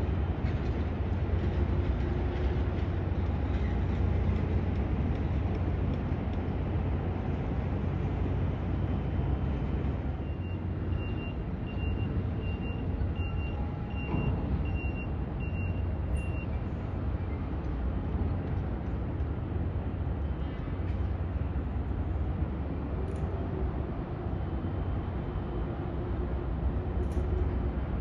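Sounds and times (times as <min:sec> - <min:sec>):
low harbour rumble: 0:00.0 - 0:28.0
reversing alarm beeps: 0:10.2 - 0:16.6.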